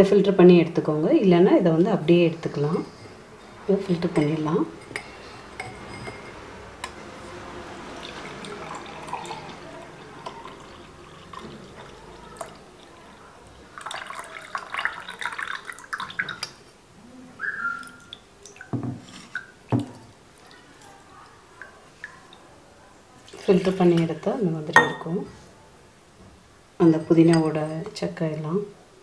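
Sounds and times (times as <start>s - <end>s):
juice dripping and splashing: 7.6s - 16.7s, 17.4s - 22.5s
juice pouring into a glass: 7.9s - 16.6s.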